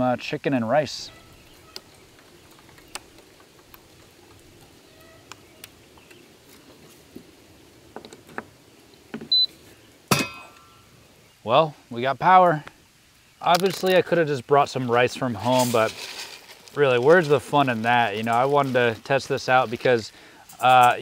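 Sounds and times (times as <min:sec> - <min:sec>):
short electronic beep: 0:09.3 - 0:09.5.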